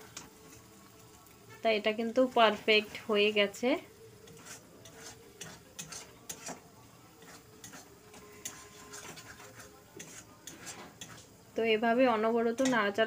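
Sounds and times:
spatula scraping metal pan: 0:04.2 - 0:11.4.

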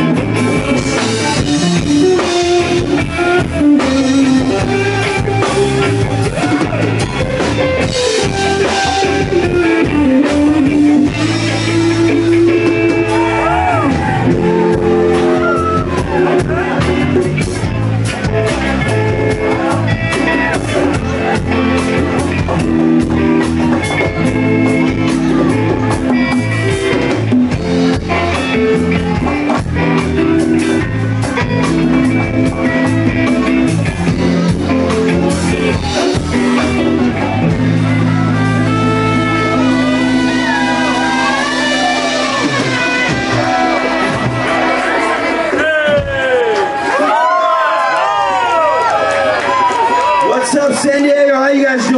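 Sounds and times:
bass: 0:00.0 - 0:51.9
bending guitar line: 0:00.0 - 0:51.9
drums: 0:00.0 - 0:51.9
electric guitars: 0:00.0 - 0:51.9.

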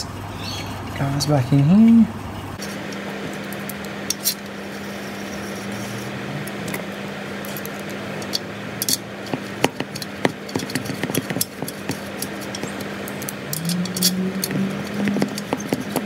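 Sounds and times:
metallic clicks of screws and key: 0:09.9 - 0:16.0.

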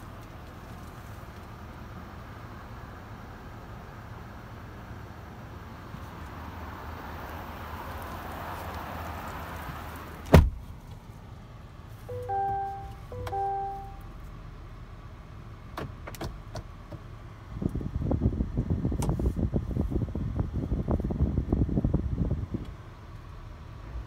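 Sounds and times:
truck door slamming: 0:10.3 - 0:10.6
two-tone dashboard chime: 0:12.1 - 0:14.1.

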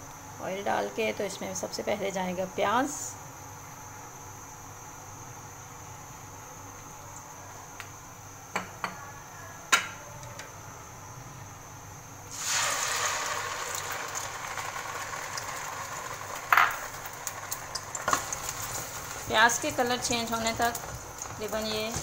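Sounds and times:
paste sizzling in hot oil: 0:12.3 - 0:22.0.

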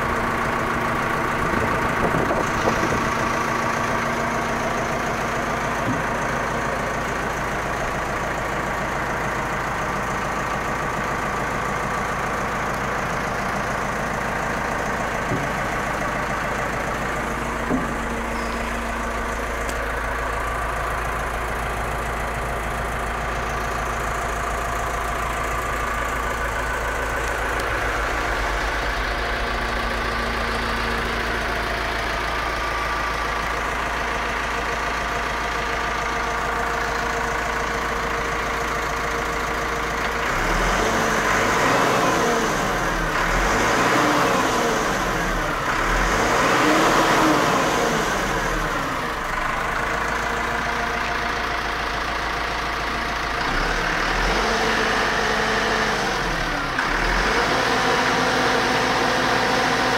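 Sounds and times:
tractor diesel engine idling: 0:00.0 - 0:59.9
engine revving: 0:39.9 - 0:51.6, 0:53.2 - 0:59.9.

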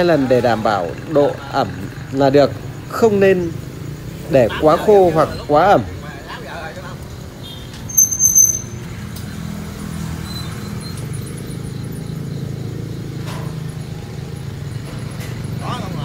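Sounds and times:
high-pitched squeal: 0:07.9 - 0:09.0.

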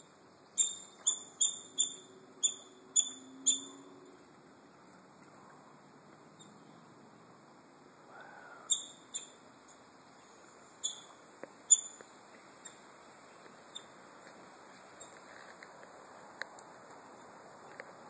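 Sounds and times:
faint steady hiss: 0:00.0 - 0:18.0
high-pitched animal chirps: 0:00.6 - 0:03.9, 0:08.6 - 0:09.4, 0:10.8 - 0:11.1.

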